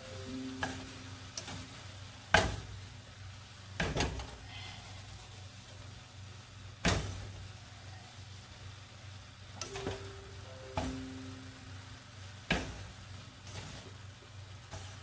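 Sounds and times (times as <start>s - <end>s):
chopsticks stirring noodles in a pan: 0.0s - 15.0s
faint sizzle: 0.0s - 15.0s
sharp knocks against a pan: 2.3s - 2.7s, 6.8s - 7.2s.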